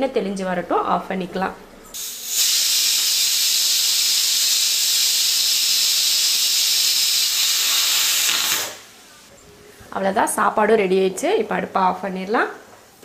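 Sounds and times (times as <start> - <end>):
pressure cooker hissing steam: 2.0 - 8.9.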